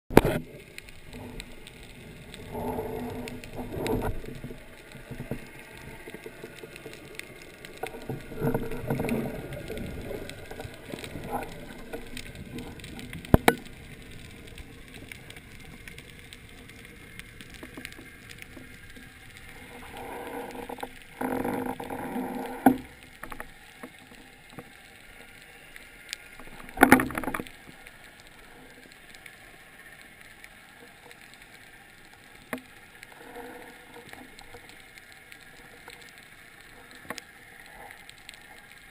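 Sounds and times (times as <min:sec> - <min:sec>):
muffled water rushing: 0:00.1 - 0:38.9
underwater hiss: 0:00.3 - 0:38.9
sharp clicks and knocks: 0:10.9 - 0:13.8.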